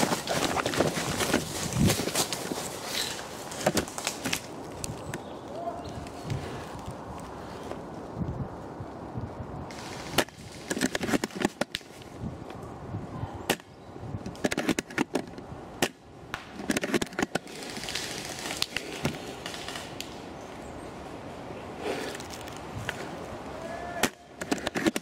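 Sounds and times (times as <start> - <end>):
rustling: 0.0 - 8.3
sharp clicks and cracks: 10.1 - 12.1, 13.5 - 20.2, 24.0 - 25.0.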